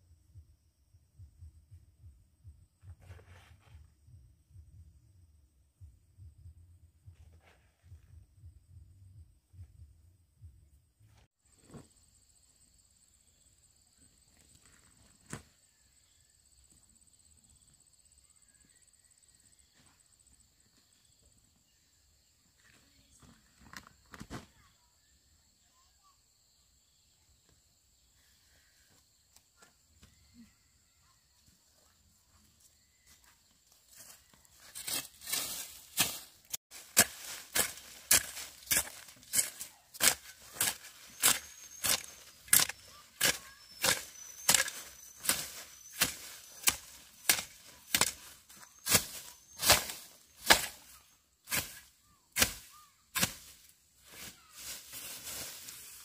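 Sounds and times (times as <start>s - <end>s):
sharp chopping strikes: 36.0s - 51.8s, 52.4s - 53.6s.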